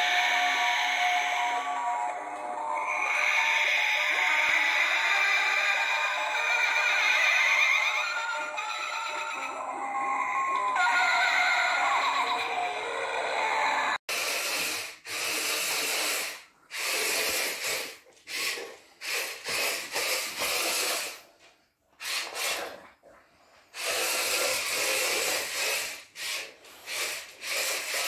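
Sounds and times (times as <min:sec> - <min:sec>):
toy motor whirring: 0:14.1 - 0:21.3, 0:22.0 - 0:22.8, 0:23.7 - 0:28.0.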